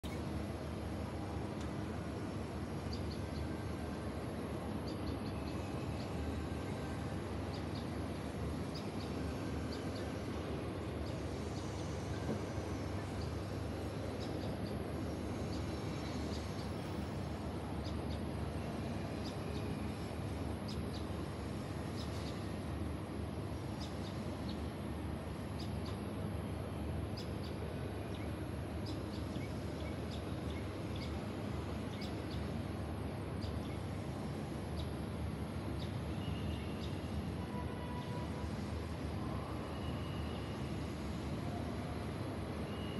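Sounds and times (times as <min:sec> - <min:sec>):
steady hum of housing estate: 0:00.0 - 0:42.9.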